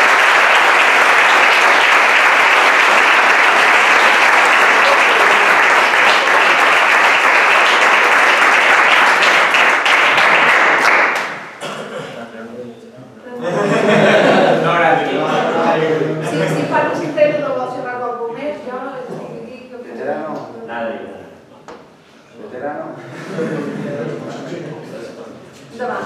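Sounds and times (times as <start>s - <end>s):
people applauding: 0.0s - 11.6s.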